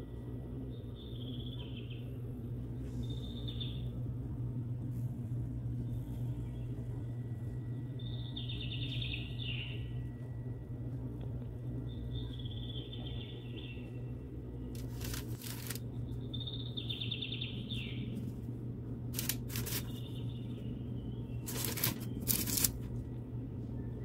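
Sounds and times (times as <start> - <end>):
steady low hum: 0.0 - 24.0
bird trilled chirping: 8.0 - 10.0, 11.9 - 18.2, 19.2 - 22.7
handling rustle: 14.8 - 15.8, 19.2 - 20.0, 21.5 - 22.9.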